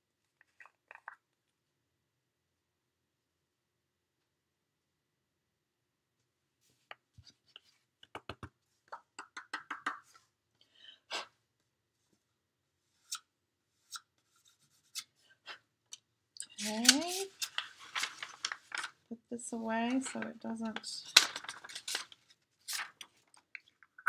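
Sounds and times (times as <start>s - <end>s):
plastic jar handled: 16.4s - 19.0s
powder rustling: 16.4s - 23.6s.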